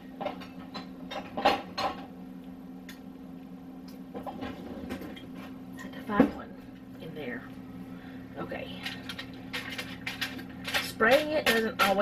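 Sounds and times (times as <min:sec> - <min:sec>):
steady low hum: 0:00.0 - 0:12.0
kitchen utensils clinking: 0:08.8 - 0:12.0.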